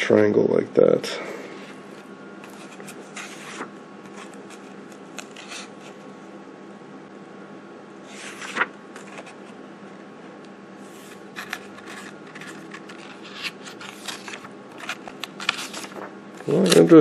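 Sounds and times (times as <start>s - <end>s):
faint steady hum: 0.0s - 17.0s
book pages turning: 1.6s - 6.0s, 8.1s - 9.6s, 10.8s - 17.0s.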